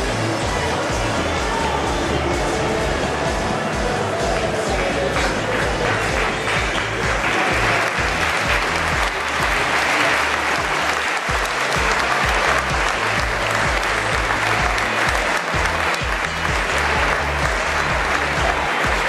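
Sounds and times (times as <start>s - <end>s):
pop music over loudspeakers: 0.0s - 19.0s
crowd clapping: 3.8s - 19.0s.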